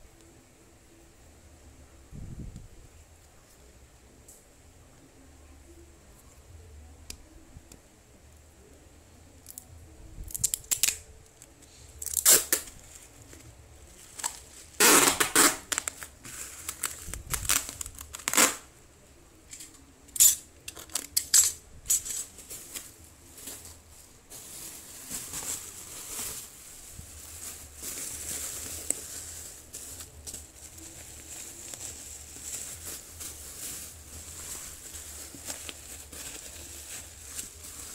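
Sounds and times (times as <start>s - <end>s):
bubble wrap crinkling: 9.4s - 18.8s, 19.5s - 37.9s
packing tape ripping off roll: 10.3s - 11.0s, 12.0s - 12.8s, 14.1s - 18.7s.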